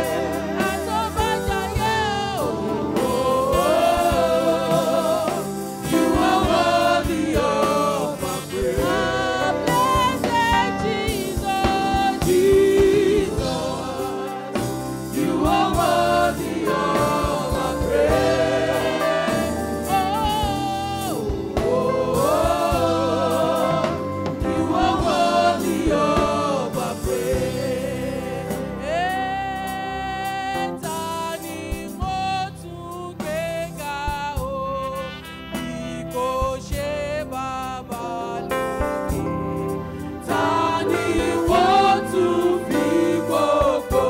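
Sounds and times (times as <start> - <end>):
woman singing lead: 0.0 - 6.7, 8.3 - 15.7
backing singers: 0.0 - 31.9, 40.1 - 44.0
band with drums and cymbals: 0.0 - 44.0.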